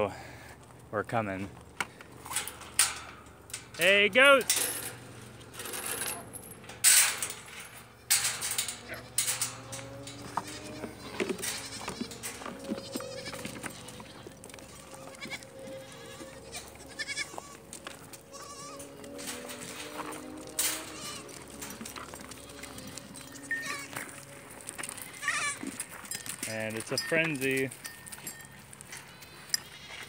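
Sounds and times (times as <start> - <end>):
goats bleating: 7.9 - 25.9, 29.1 - 30.0.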